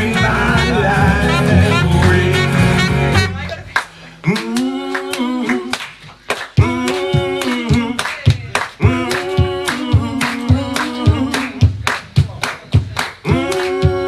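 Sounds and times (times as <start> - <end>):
voices singing in harmony: 0.0 - 3.4, 4.2 - 6.0, 6.6 - 8.0, 8.8 - 11.6, 13.2 - 14.0
hand claps: 3.5 - 14.0.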